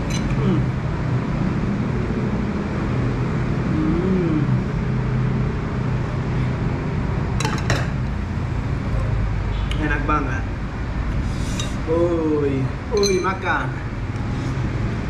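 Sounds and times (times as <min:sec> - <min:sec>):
spoon clinking against bowl: 0:00.0 - 0:00.4, 0:12.9 - 0:13.4
road traffic: 0:00.0 - 0:15.0.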